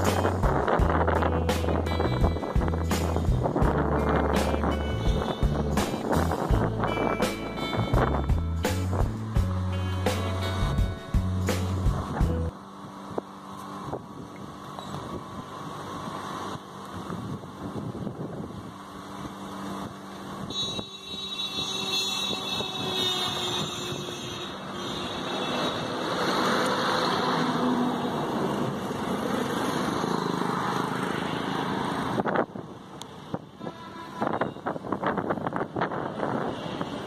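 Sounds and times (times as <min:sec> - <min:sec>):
motor vehicle running: 0:00.0 - 0:12.6
high-pitched tone: 0:01.0 - 0:08.9, 0:20.5 - 0:23.1.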